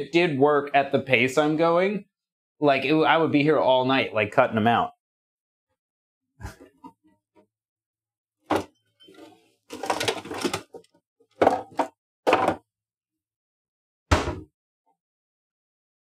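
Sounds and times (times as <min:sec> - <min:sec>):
knocks and clatters of objects: 0:08.5 - 0:12.7.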